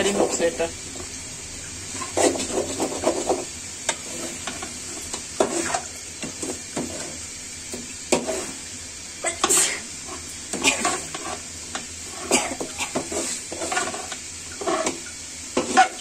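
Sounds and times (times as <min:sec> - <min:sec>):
frying sizzle: 0:00.0 - 0:16.0
metal spoon scraping metal pan: 0:09.3 - 0:11.5, 0:12.1 - 0:15.0, 0:15.6 - 0:16.0.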